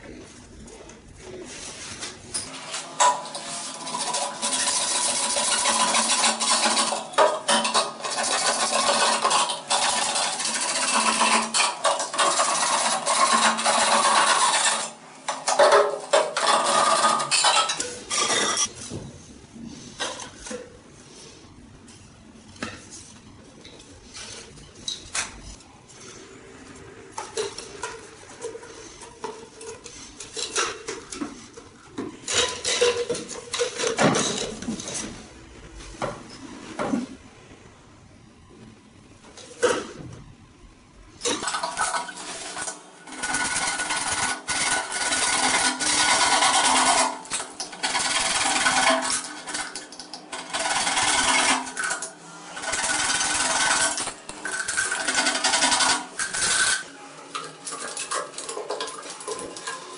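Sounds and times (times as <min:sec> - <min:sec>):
pipe scrapes and clicks: 0:00.0 - 0:19.0, 0:21.8 - 0:35.2, 0:41.2 - 0:59.9
hacksaw cutting plastic pipe: 0:03.0 - 0:18.7, 0:41.3 - 0:56.8.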